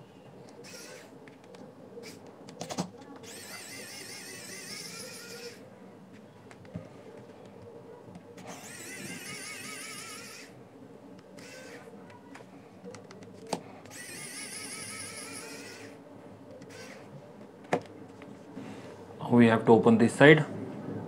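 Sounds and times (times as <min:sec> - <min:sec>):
electric screwdriver motor whining: 0:00.6 - 0:01.1, 0:03.2 - 0:05.6, 0:08.4 - 0:10.5, 0:11.4 - 0:11.9, 0:13.9 - 0:16.0, 0:16.6 - 0:17.1.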